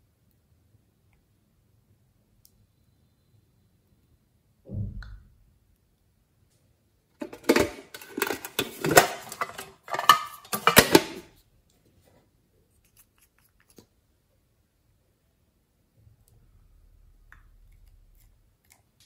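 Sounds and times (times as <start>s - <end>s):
tin box lid and contents rattling: 7.2s - 11.2s.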